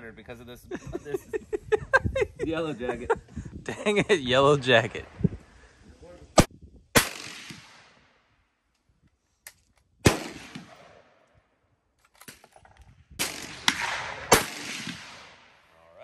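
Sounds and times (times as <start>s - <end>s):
rifle shots with echoes: 6.4s - 8.1s, 10.0s - 11.2s, 13.2s - 15.7s.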